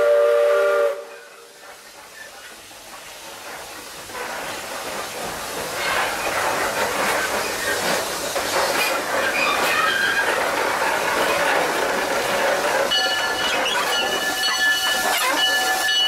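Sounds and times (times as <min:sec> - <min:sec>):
steam hiss: 0:00.0 - 0:16.0
steam locomotive running: 0:00.0 - 0:16.0
wheel clatter on rails: 0:01.6 - 0:16.0
wheel squeal: 0:09.2 - 0:10.4.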